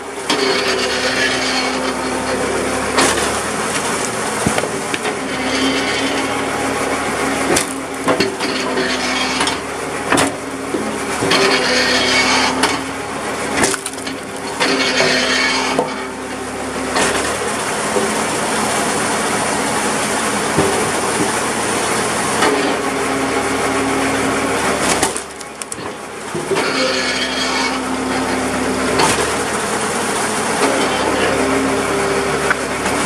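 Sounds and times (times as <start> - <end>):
tractor engine running: 0.0 - 33.0
wood cracking and splitting: 0.3 - 16.0, 24.5 - 27.4
wood pieces knocking on beam: 3.0 - 6.1, 7.4 - 11.6, 13.6 - 16.0.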